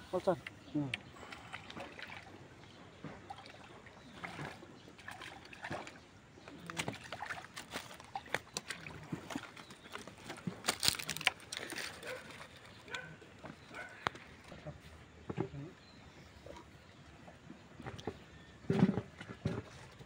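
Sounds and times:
fish splashing in water: 0:01.1 - 0:14.4
small clicks and rustles: 0:07.6 - 0:12.8.

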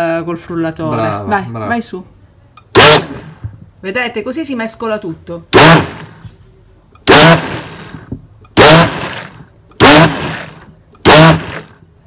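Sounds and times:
blender pulsing: 0:02.8 - 0:03.4, 0:05.6 - 0:06.2, 0:07.1 - 0:11.8.

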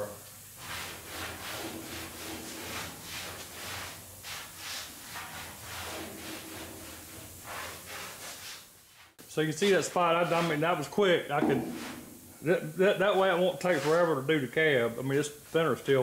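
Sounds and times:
rag rubbing on metal roof: 0:00.6 - 0:08.7, 0:09.6 - 0:12.3.

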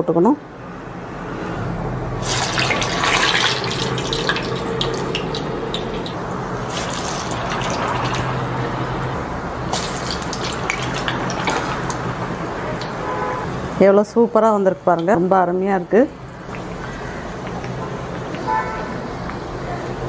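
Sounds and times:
batter deep-frying in oil: 0:02.2 - 0:13.0, 0:14.8 - 0:19.5.

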